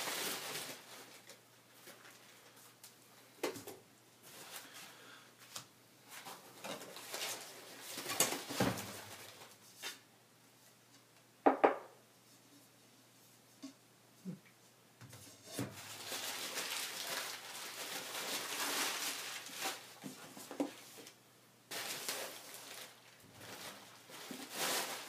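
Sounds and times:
packing paper crumpling: 0.0 - 2.6, 15.8 - 21.1, 21.7 - 25.0
plastic wrap rustling: 0.0 - 2.9, 4.2 - 10.0, 15.5 - 25.0.

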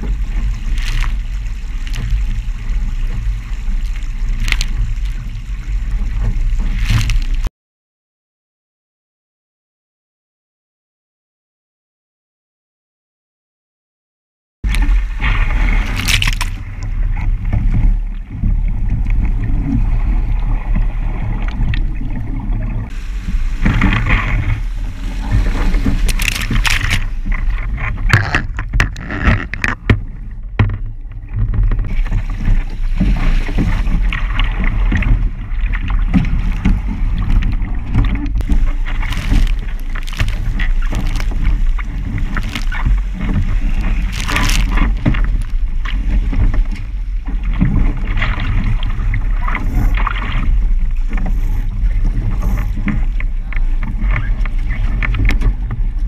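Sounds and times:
spray and splashing: 0.0 - 7.5, 22.9 - 27.6, 38.4 - 46.2
water rushing past hull: 0.0 - 7.5, 14.7 - 56.0.

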